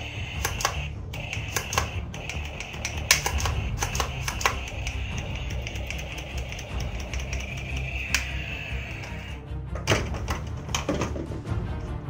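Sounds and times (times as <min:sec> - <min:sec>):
toy pistol plastic clicks: 0:00.0 - 0:09.3
background music: 0:00.0 - 0:12.0.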